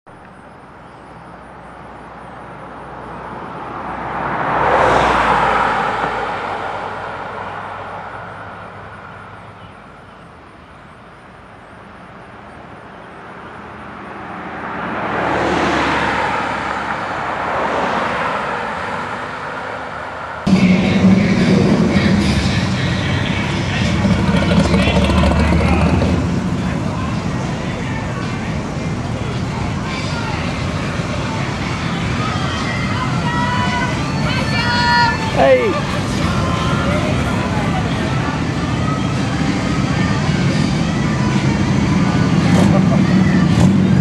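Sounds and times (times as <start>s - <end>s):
vehicles passing by: 0.1s - 44.0s
low rumble: 20.5s - 32.3s.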